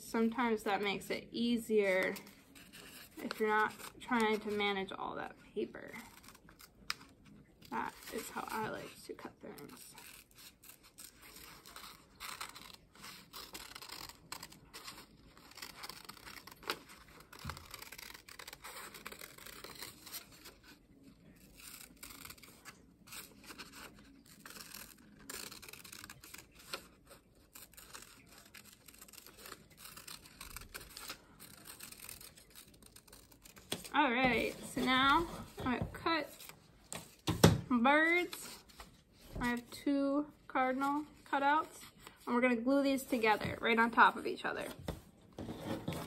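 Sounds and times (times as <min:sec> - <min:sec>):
scissors snipping paper: 0:01.8 - 0:05.0, 0:05.9 - 0:37.4.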